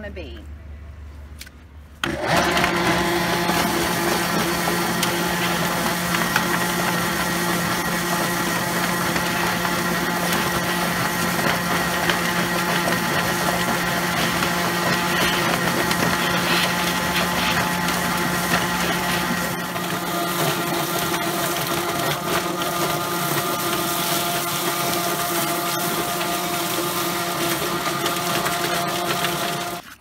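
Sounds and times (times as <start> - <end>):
electric motor humming: 2.0 - 29.8
hose spraying water: 14.2 - 19.5.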